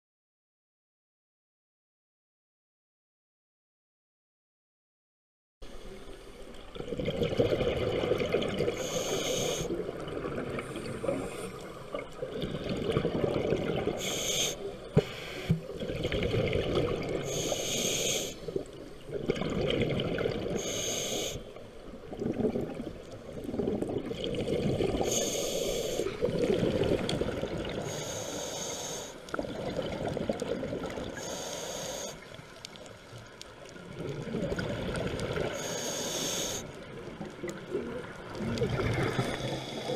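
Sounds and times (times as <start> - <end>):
exhaled bubbles gurgling: 6.6 - 28.5, 29.3 - 39.9
regulator inhalation hiss: 8.7 - 9.8, 14.0 - 15.6, 17.3 - 18.6, 20.6 - 21.6, 25.0 - 26.2, 27.8 - 29.3, 31.2 - 32.3, 35.6 - 36.8.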